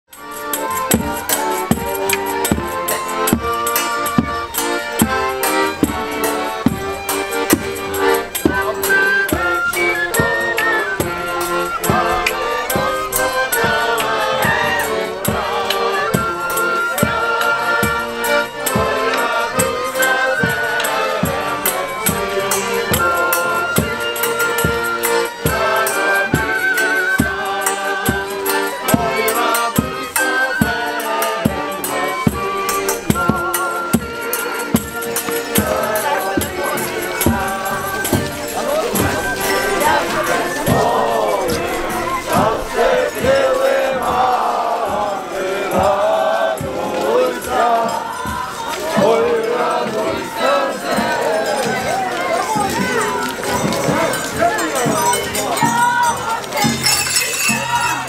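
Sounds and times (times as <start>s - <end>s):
accordion: 0.1s - 58.0s
violin: 0.1s - 58.0s
wooden flute: 0.1s - 58.0s.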